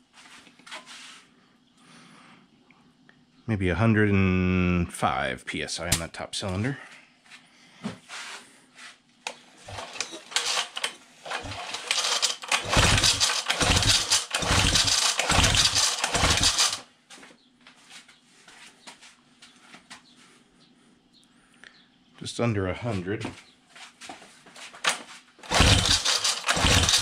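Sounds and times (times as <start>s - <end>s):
outboard pull-cord starter cranking: 9.7s - 16.8s, 24.9s - 27.0s.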